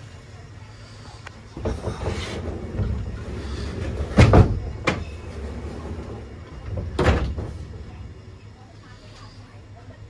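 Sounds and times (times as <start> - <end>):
wardrobe door rumbling: 1.5 - 8.3.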